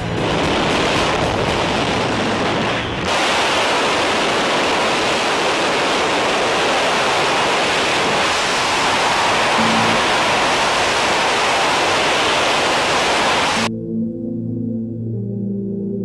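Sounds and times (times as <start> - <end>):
wind buffeting microphone: 0.0 - 13.6.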